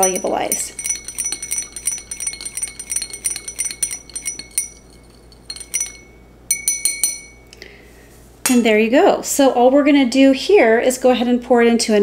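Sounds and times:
metal rod clinking on glass: 0.0s - 7.5s.

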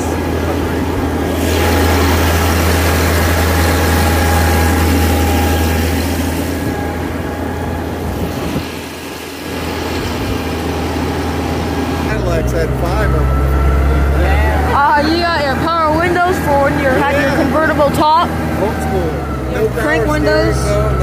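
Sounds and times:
water rushing along hull: 0.0s - 12.2s
boat engine running: 0.0s - 21.0s.

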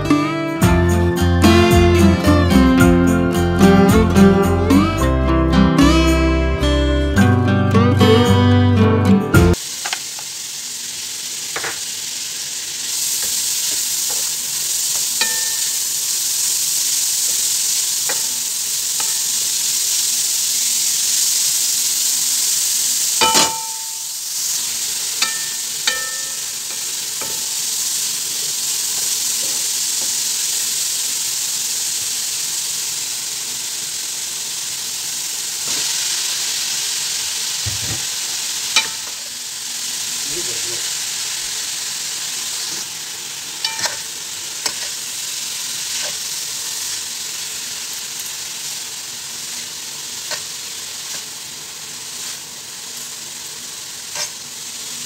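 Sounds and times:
vegetables sizzling in oil: 9.4s - 55.0s
spatula knocking on pan: 23.2s - 23.9s.

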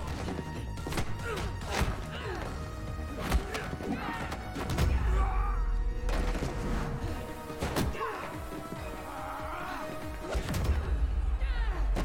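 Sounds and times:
punches and body blows landing: 0.0s - 5.3s
dramatic action music: 0.0s - 12.0s.

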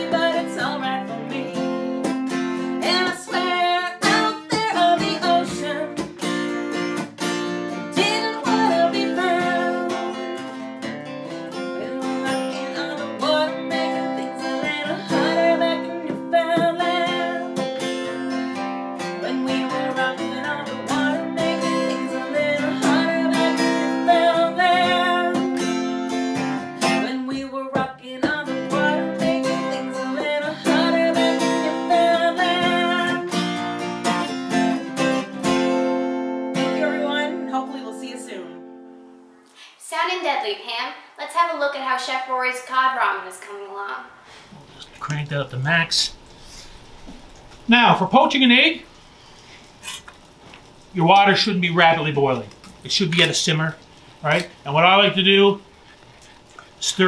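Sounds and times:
woman singing: 0.0s - 6.1s, 7.9s - 10.4s, 11.5s - 17.7s, 19.0s - 25.7s, 26.8s - 33.5s, 36.6s - 38.6s
strummed acoustic guitar: 0.0s - 39.2s.

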